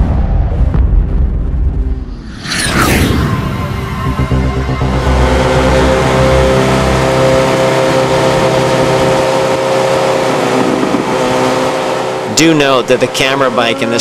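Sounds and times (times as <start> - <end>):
wind rush: 2.0 - 9.3, 10.2 - 11.9
motorcycle engines running: 4.9 - 14.0.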